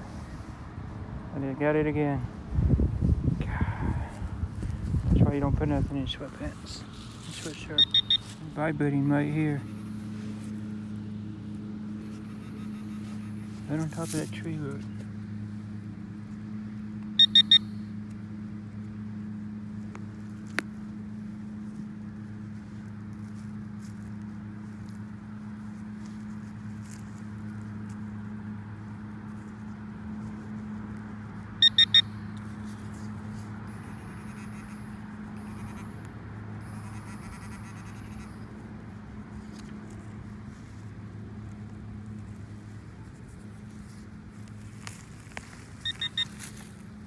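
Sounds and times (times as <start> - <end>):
steady low hum: 0.0 - 47.0
quick high beeps: 7.7 - 8.3, 17.2 - 17.8, 31.6 - 32.2, 45.8 - 46.4.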